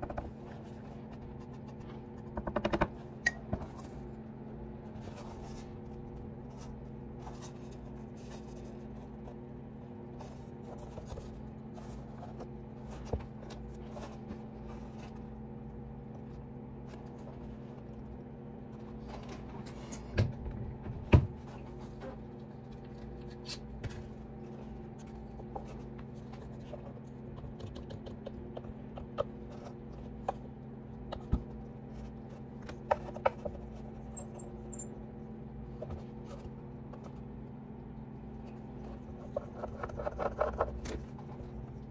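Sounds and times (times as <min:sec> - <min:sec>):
steady hum: 0:00.0 - 0:41.9
knocks and clicks on wood: 0:02.3 - 0:03.0.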